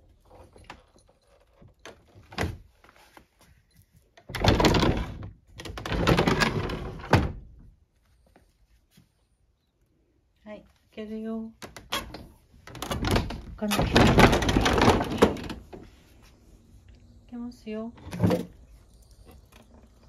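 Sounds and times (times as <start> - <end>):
wooden door rattling in frame: 4.3 - 7.5, 11.6 - 15.8.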